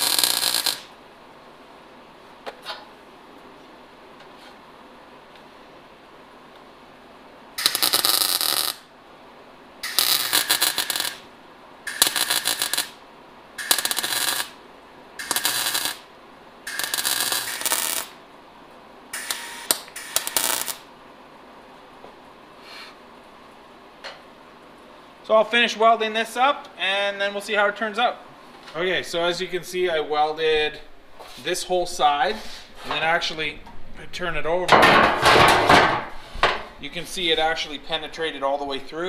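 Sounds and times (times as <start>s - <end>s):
welding arc crackling: 0.0s - 1.0s, 7.6s - 8.9s, 9.8s - 11.3s, 11.9s - 13.0s, 13.6s - 14.6s, 15.2s - 18.2s, 19.1s - 20.9s.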